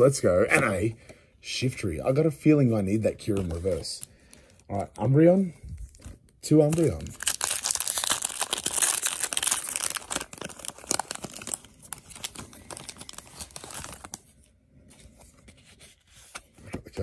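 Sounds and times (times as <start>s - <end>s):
foil wrapper crinkling and tearing: 5.9s - 14.2s.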